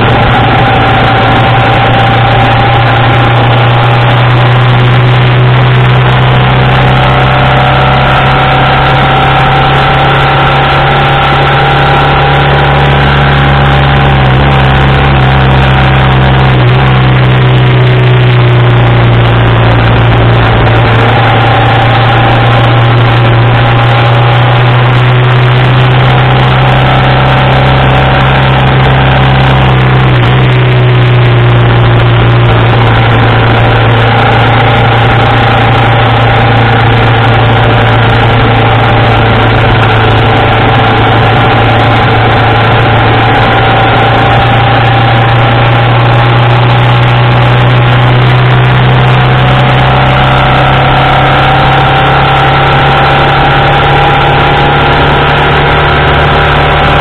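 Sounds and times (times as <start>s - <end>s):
wind rushing: 0.0s - 12.8s
motorcycle engine running: 0.0s - 57.0s.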